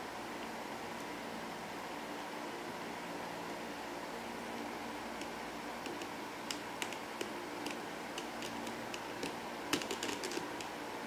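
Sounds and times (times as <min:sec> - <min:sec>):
plastic bricks clicking and sliding: 0:05.8 - 0:10.7.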